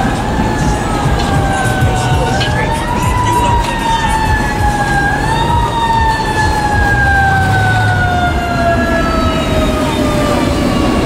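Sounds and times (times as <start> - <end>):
fire engine siren: 0.0 - 11.0
truck engine running: 0.0 - 11.0.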